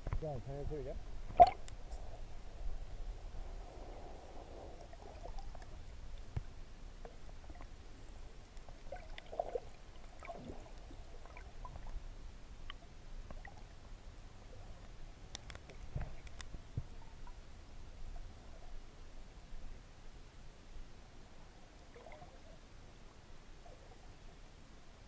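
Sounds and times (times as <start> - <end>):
underwater rumble of moving water: 0.0 - 25.0
soft gurgles: 1.2 - 6.4, 8.6 - 12.0, 21.8 - 22.6
faint clicks: 14.8 - 17.4.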